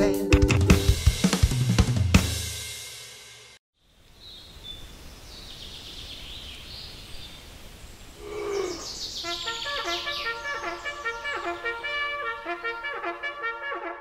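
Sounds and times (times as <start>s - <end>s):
drum-backed music: 0.0s - 3.5s
birds chirping: 3.8s - 13.6s
brass tune: 9.2s - 14.0s.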